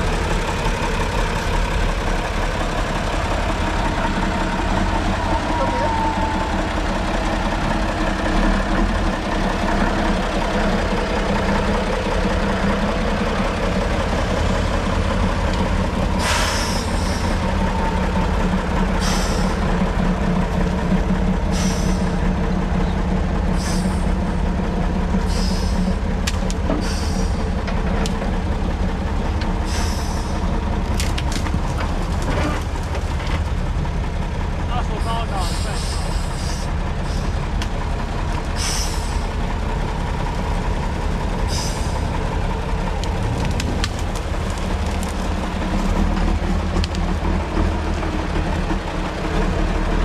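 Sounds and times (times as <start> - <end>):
diesel truck engine under load: 0.0 - 50.0
short sharp hisses: 38.6 - 39.1.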